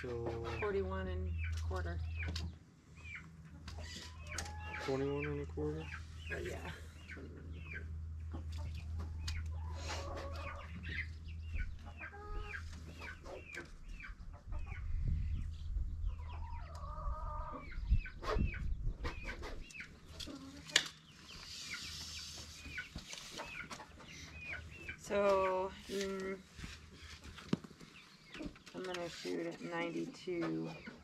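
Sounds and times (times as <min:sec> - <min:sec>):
steady low hum: 0:00.0 - 0:16.4
chickens clucking: 0:00.0 - 0:31.0.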